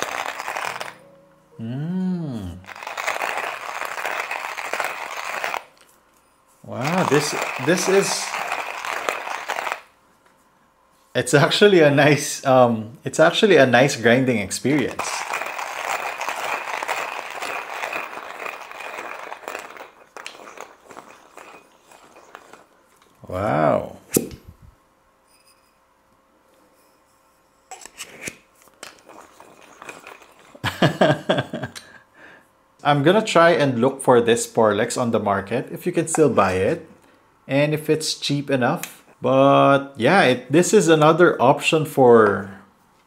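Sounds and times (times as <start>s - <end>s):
hand grinder crunching coffee beans: 0.0s - 1.0s, 2.5s - 6.0s, 6.6s - 9.9s, 14.6s - 23.4s, 28.2s - 31.4s
person saying ooh: 1.6s - 2.7s.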